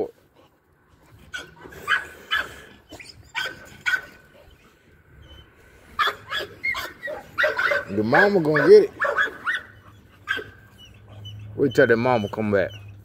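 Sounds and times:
dog barking: 1.4s - 2.6s, 3.3s - 4.2s, 6.0s - 10.6s.

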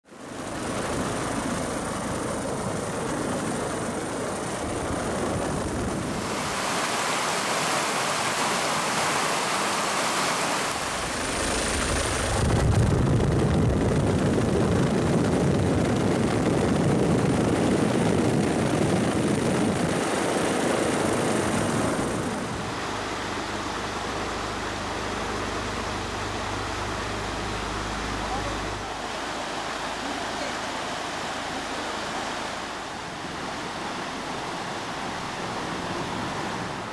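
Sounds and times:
helicopter rushing noise: 0.1s - 7.5s, 10.6s - 29.1s.

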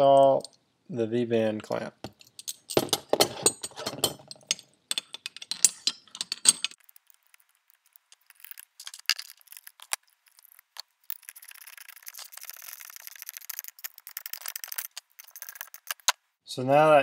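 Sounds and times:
metal clamp clinking and rattling: 2.0s - 6.8s.

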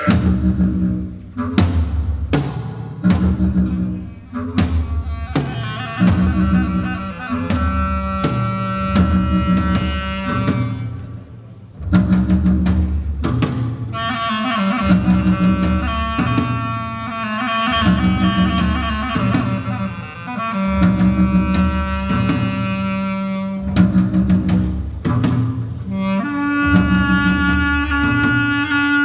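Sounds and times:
drum and cymbal hits: 0.0s - 28.7s
wavering clarinet melody: 3.4s - 11.2s, 13.9s - 24.5s, 25.8s - 29.0s.

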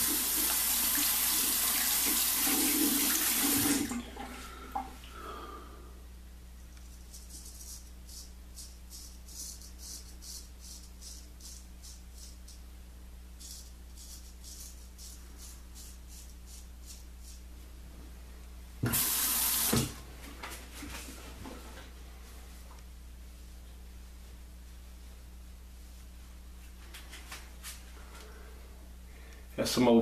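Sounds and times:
bathroom tap gushing: 0.0s - 4.9s, 18.8s - 20.0s.

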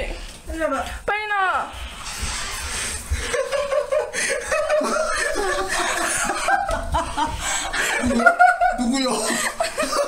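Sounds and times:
breathy noise: 1.8s - 6.2s
people laughing: 2.8s - 10.0s.

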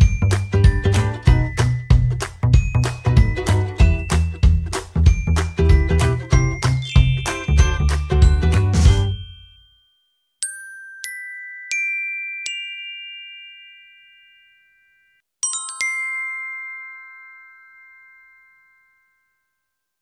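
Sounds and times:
bell-like chime jingle: 0.0s - 20.0s.

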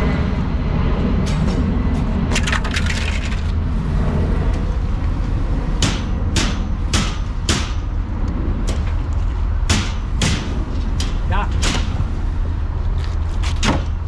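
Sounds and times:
steady low rumble: 0.0s - 14.0s
hammer striking metal: 5.8s - 7.8s, 9.7s - 11.9s.

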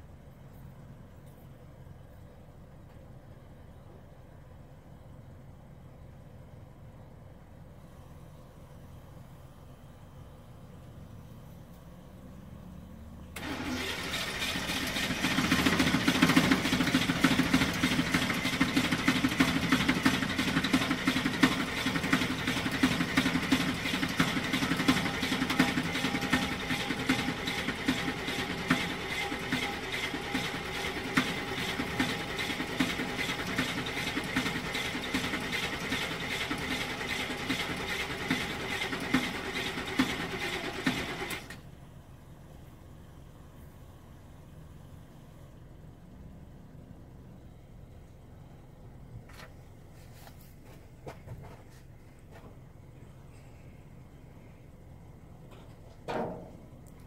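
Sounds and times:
truck engine cranking: 13.4s - 41.6s.

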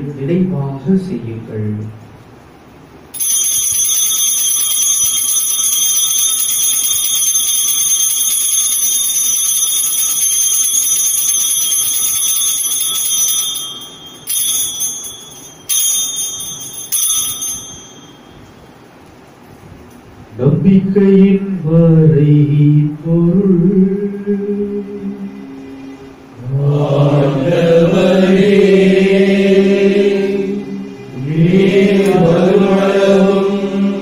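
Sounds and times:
altar bells ringing: 3.2s - 19.0s.

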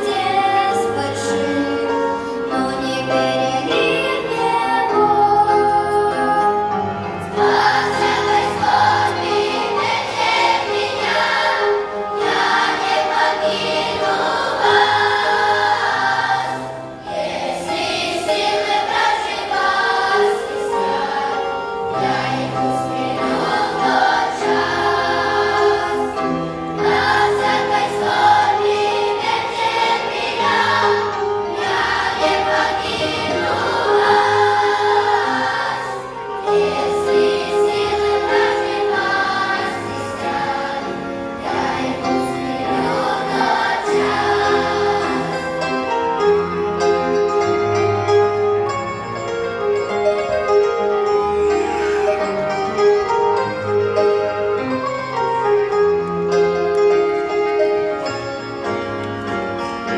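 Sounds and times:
children's choir singing a hymn: 0.0s - 59.9s.

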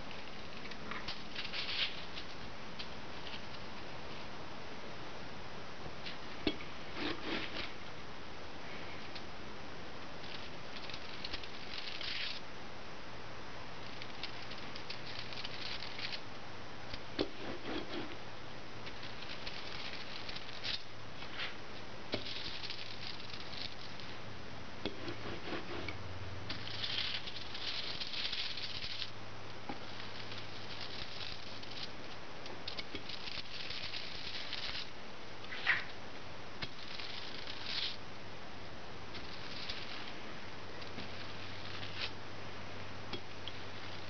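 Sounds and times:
ink roller crackling on foil: 0.1s - 2.4s, 10.2s - 12.4s, 13.8s - 16.2s, 18.8s - 24.2s, 26.5s - 34.9s, 36.6s - 38.0s, 39.1s - 40.2s, 40.8s - 42.2s.

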